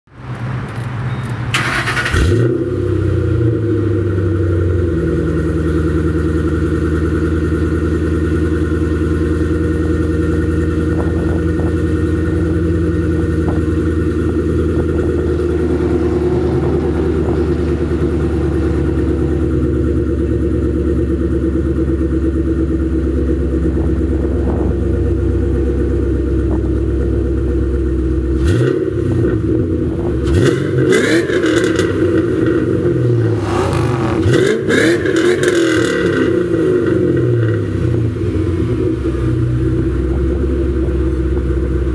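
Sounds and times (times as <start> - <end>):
car engine starting and idling: 0.2 - 41.9.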